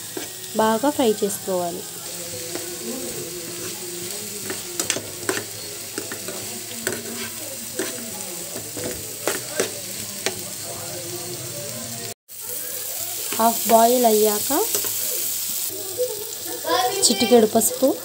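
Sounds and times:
vegetables sizzling in oil: 0:00.0 - 0:18.0
spatula scraping and tapping pan: 0:04.4 - 0:10.4.

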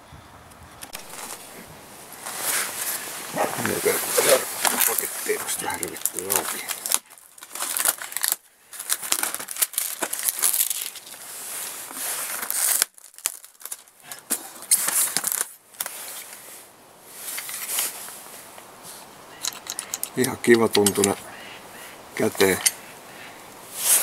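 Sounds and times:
plastic wrap crinkling and tearing: 0:02.3 - 0:16.2.

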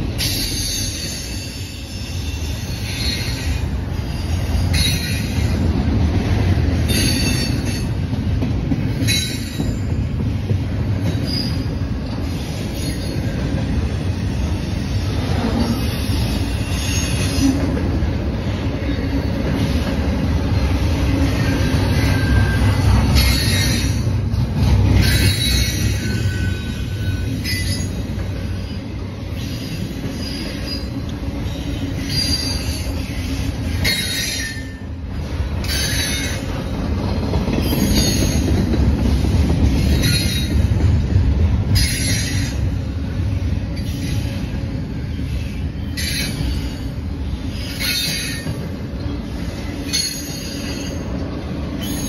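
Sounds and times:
train wheels rumbling on rails: 0:00.0 - 0:52.0
high-pitched wheel squeal: 0:21.3 - 0:24.1, 0:25.0 - 0:28.0, 0:28.6 - 0:34.8.

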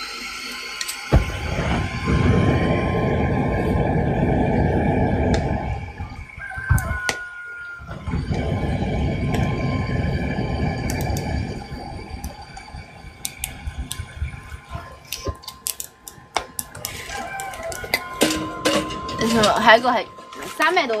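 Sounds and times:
gas torch roaring: 0:00.0 - 0:21.0
kindling clicks and crackles: 0:15.1 - 0:18.0.

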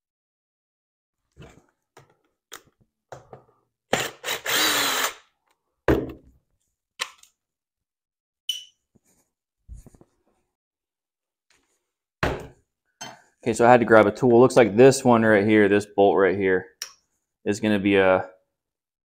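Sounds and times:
cordless impact driver running: 0:03.9 - 0:05.2.

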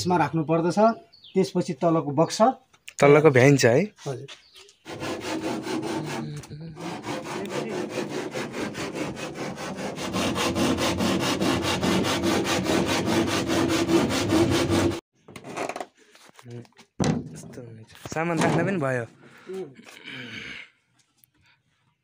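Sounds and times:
handsaw cutting plywood: 0:04.8 - 0:15.0.

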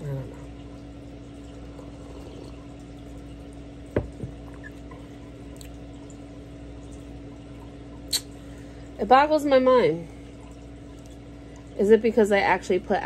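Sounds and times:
steady hum: 0:00.0 - 0:13.0
liquid sipping from a mug: 0:01.4 - 0:03.2, 0:04.0 - 0:05.8.

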